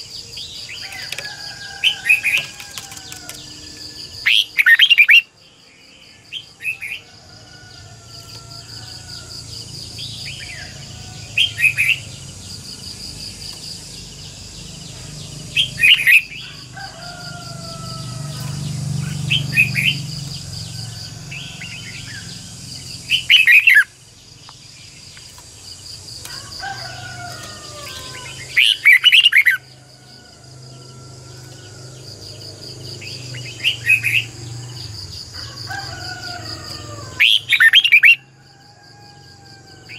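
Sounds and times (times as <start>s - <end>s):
bird singing rapid phrases: 0.0s - 6.8s, 18.3s - 26.0s, 27.4s - 29.7s, 37.1s - 38.2s.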